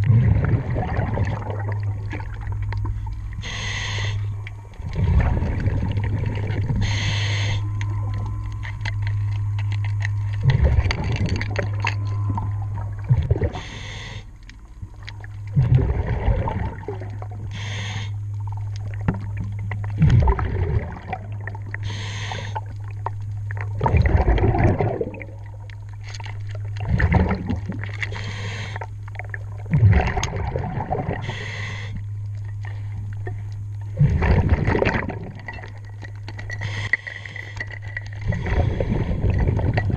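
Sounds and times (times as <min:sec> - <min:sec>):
exhaust bubbles rushing: 0:00.0 - 0:03.8, 0:04.8 - 0:07.2, 0:10.3 - 0:13.7, 0:15.1 - 0:17.5, 0:18.4 - 0:21.8, 0:23.5 - 0:25.7, 0:26.6 - 0:27.9, 0:29.2 - 0:31.4, 0:33.9 - 0:36.0, 0:38.1 - 0:39.9
steady low hum: 0:00.0 - 0:39.9
regulator inhalation hiss: 0:03.4 - 0:04.3, 0:06.8 - 0:07.7, 0:13.6 - 0:14.3, 0:17.5 - 0:18.2, 0:21.8 - 0:22.6, 0:28.1 - 0:28.8, 0:31.2 - 0:32.0.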